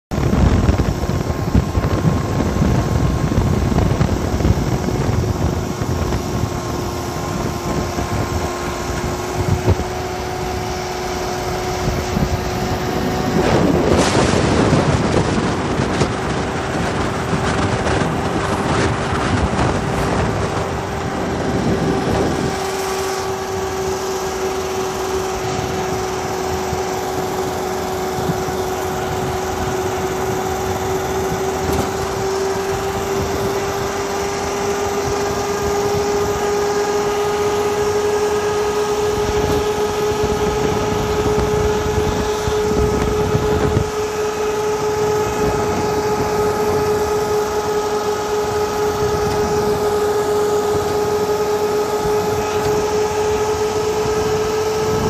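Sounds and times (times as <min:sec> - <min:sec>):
car engine and tyres rumbling: 0:00.0 - 0:55.0.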